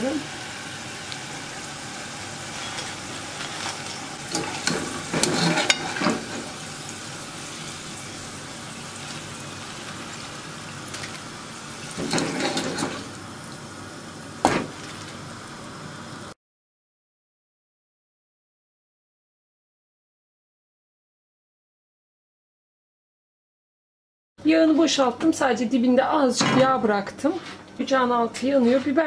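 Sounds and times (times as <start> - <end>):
oil sizzling: 0.0 - 16.4
chips clinking and scraping: 2.5 - 6.4.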